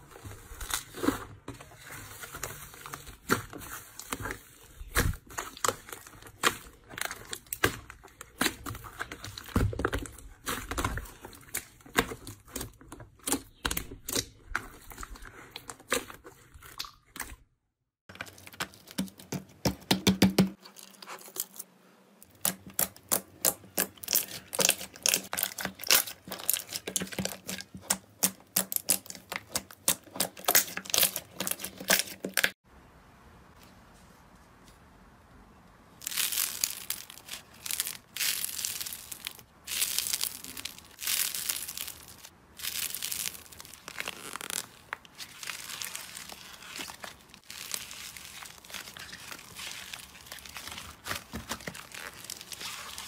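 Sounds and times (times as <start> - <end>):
slime crackling and popping: 22.4 - 32.6, 36.0 - 53.0.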